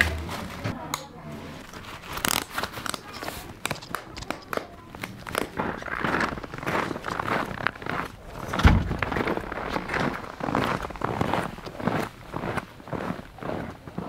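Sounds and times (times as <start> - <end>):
webbing rustling: 1.4 - 13.0
buckles clicking and scraping: 1.7 - 7.8.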